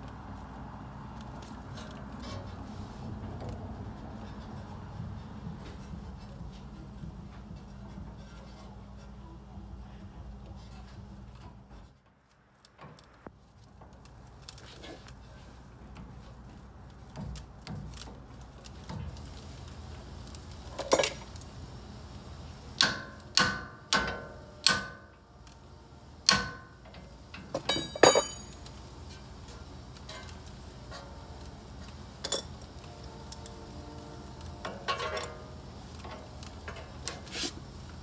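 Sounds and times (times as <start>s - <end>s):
metal tools clinking: 27.4s - 28.7s.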